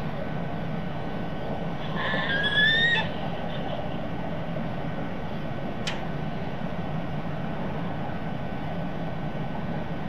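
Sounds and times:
low background rumble: 0:00.0 - 0:10.0
sharp tick: 0:05.8 - 0:06.0.

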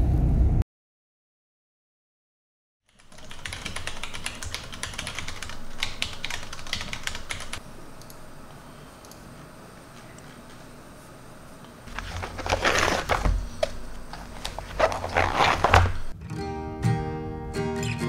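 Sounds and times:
fast typing on keyboard: 0:02.9 - 0:07.6.

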